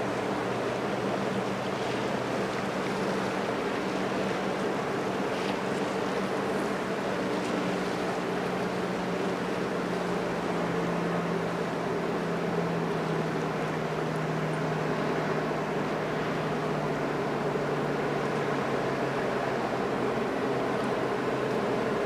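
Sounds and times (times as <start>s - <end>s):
ship engines droning: 0.0s - 22.0s.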